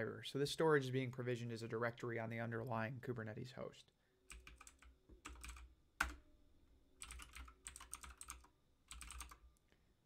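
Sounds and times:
keyboard typing: 4.3 - 6.2, 7.0 - 9.5.

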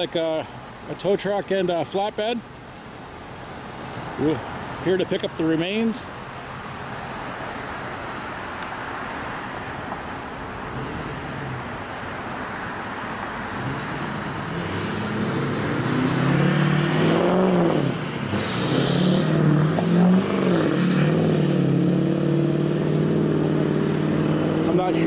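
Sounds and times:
road noise: 0.0 - 25.0
vehicle engine driving past: 13.4 - 25.0.

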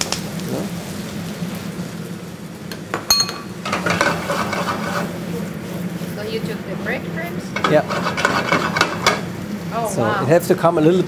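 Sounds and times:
steady low hum: 0.1 - 11.0
metallic clink on frying pan: 3.0 - 4.0
food sliding in tossed pan: 3.7 - 6.2, 7.6 - 9.3.

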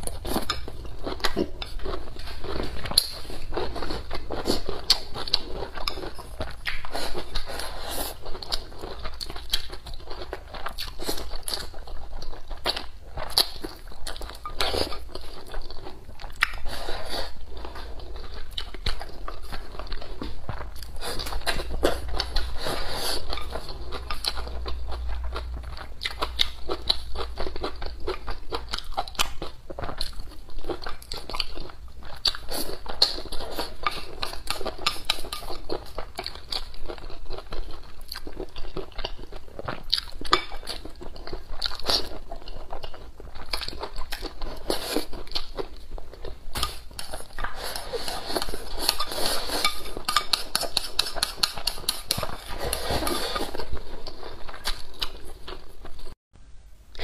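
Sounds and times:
person chewing: 0.0 - 56.2
chopsticks scraping ceramic bowl: 46.6 - 53.5.

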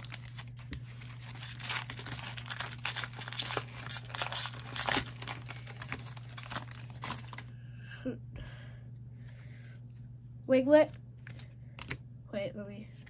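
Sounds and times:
foil wrapper crinkling and tearing: 0.0 - 7.5.

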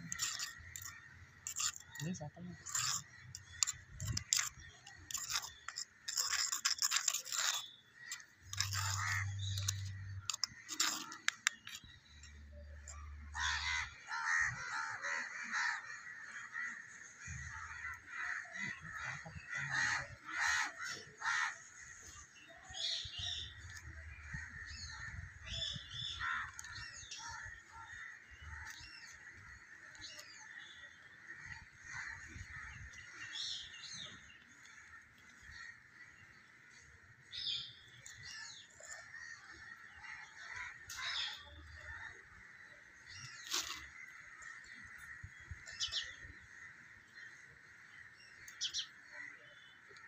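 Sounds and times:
crows cawing: 13.4 - 21.8.

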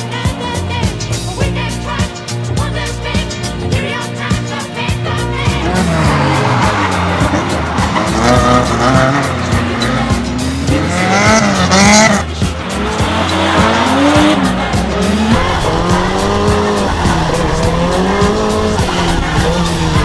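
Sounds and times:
car engines revving hard: 4.6 - 20.0
tyres squealing: 5.2 - 20.0.

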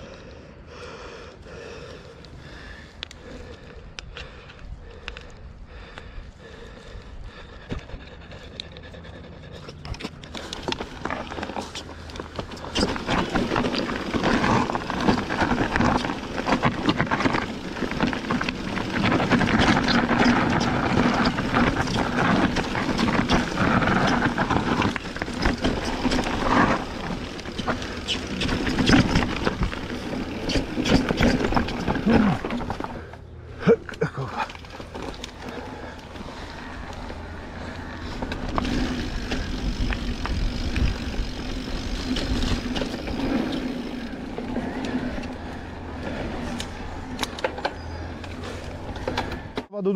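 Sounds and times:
bike tyres on dirt and stones: 0.0 - 49.9
bike knocking and rattling: 2.4 - 49.8.

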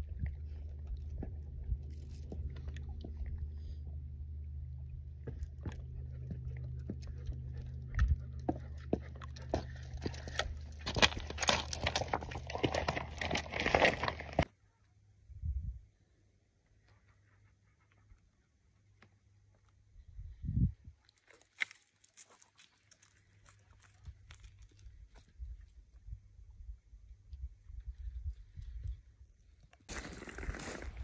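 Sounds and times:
low steady rumble: 0.0 - 14.5, 23.8 - 29.6
footsteps crunching on loose rocks: 8.5 - 14.5, 29.9 - 31.0.

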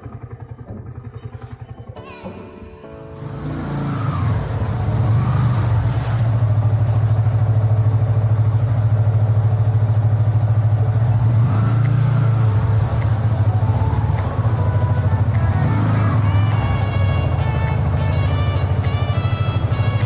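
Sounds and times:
motorcycle engine idling: 0.0 - 2.0, 6.4 - 20.0.

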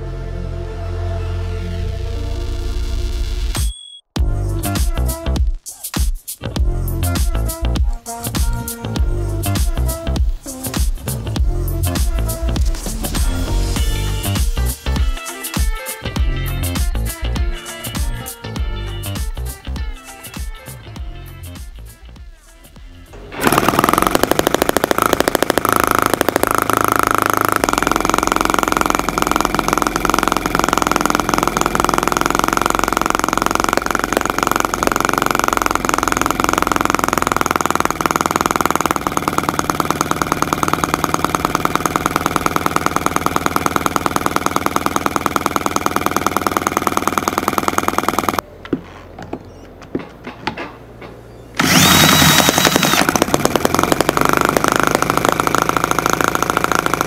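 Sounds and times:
electric drill whine: 23.1 - 48.4, 51.6 - 57.0
model engine running fast: 23.3 - 48.4, 51.6 - 57.0.

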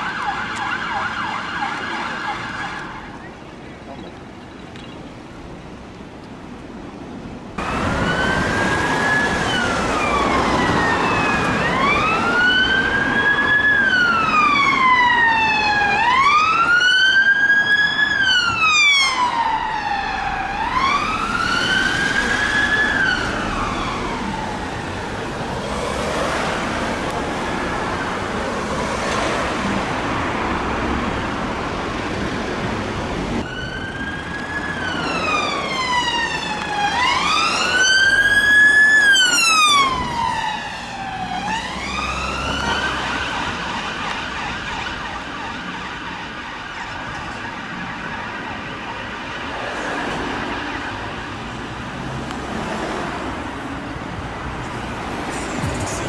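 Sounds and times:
police siren wailing: 0.0 - 3.2, 7.6 - 29.0, 33.4 - 51.4
traffic noise: 0.0 - 56.0.

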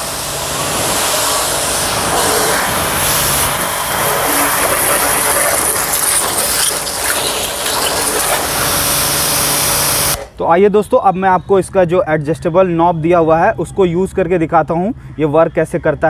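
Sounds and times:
pressure washer motor humming: 0.0 - 10.3
water jet hissing: 0.0 - 10.3.

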